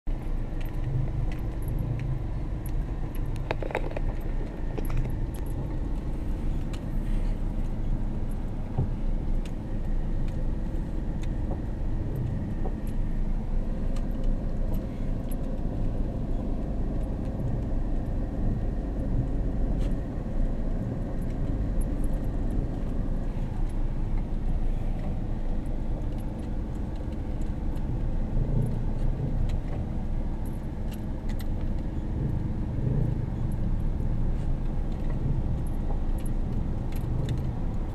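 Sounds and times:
car engine and road rumble: 0.0s - 37.9s
light clicks and rattles: 0.1s - 37.9s.

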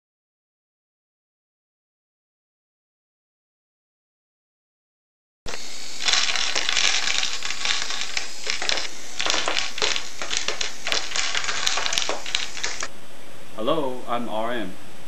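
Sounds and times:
toy motor and gearbox spinning: 5.5s - 12.9s
wooden pegs knocked over: 5.5s - 12.9s
rapid plastic clatter: 6.0s - 12.9s.

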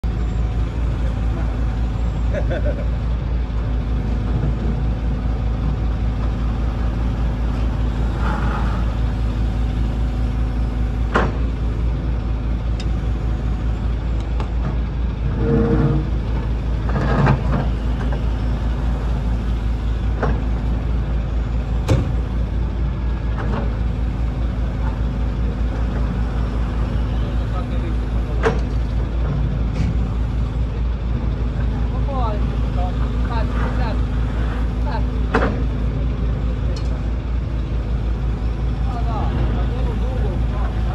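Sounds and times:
excavator diesel engine running: 0.0s - 40.9s
sharp clanks and knocks: 11.1s - 11.5s, 21.8s - 22.2s, 28.4s - 30.1s, 35.3s - 35.8s.

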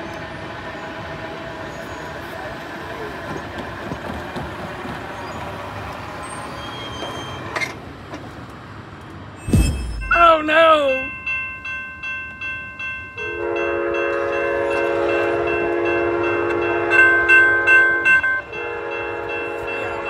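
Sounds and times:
train wheels rumbling on rails: 0.0s - 10.1s
faint wheel squealing: 6.2s - 7.8s
sharp knock: 9.4s - 10.2s.

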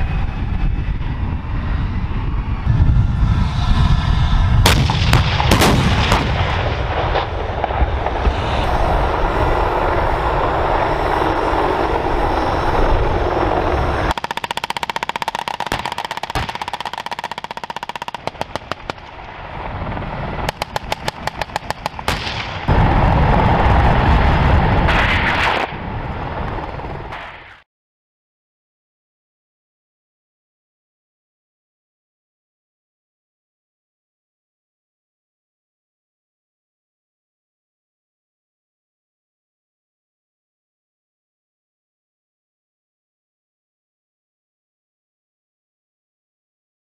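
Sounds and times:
deep rumble: 0.0s - 14.3s, 15.0s - 27.2s
heavy tank gun shots: 4.6s - 8.2s, 14.1s - 19.1s, 20.5s - 23.0s
rapid machine-gun fire: 14.1s - 19.1s, 20.5s - 22.7s.

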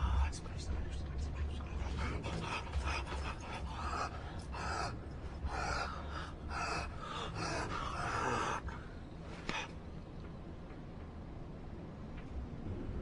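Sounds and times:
heavy breathing gasps: 1.9s - 9.8s.

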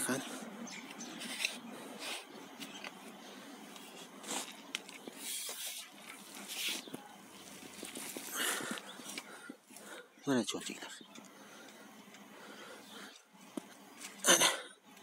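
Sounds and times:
stick scraping through compost: 0.9s - 2.9s, 3.9s - 7.0s.

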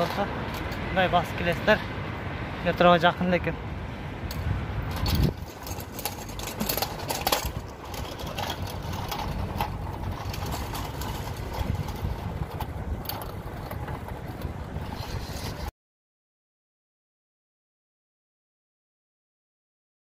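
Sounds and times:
traffic rumble: 0.0s - 15.7s.

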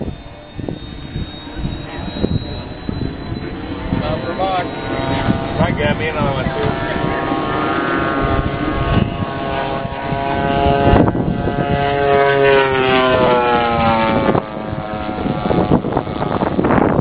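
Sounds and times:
model airplane propeller drone: 0.0s - 17.0s.

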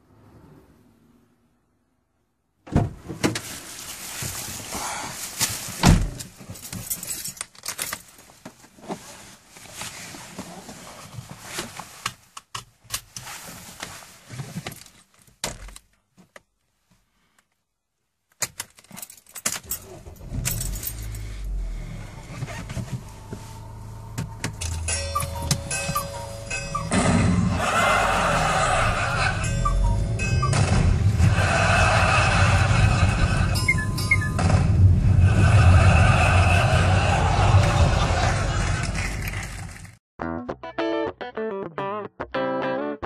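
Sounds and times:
keys jangling and clattering: 6.4s - 8.2s, 18.4s - 21.3s.

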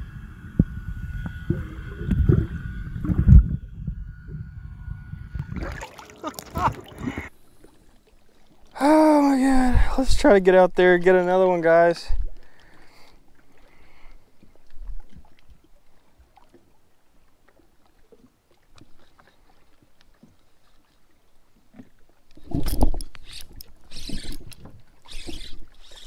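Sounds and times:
fishing reel clicks: 22.4s - 26.0s.

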